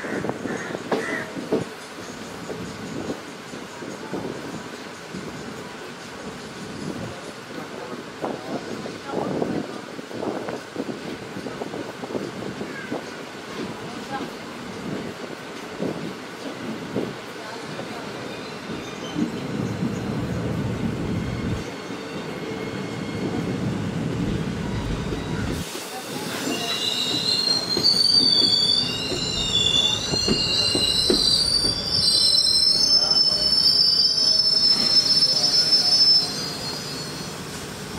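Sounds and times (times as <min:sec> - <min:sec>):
train wheels squealing: 0:17.6 - 0:20.4, 0:21.2 - 0:23.5, 0:24.6 - 0:37.9.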